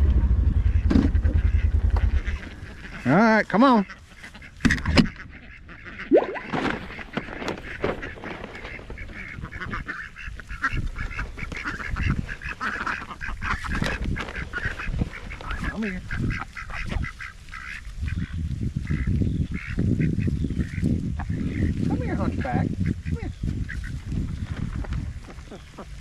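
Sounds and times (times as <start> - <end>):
low rumble: 0.0 - 3.2
ducks quacking: 0.5 - 24.3, 25.0 - 26.0.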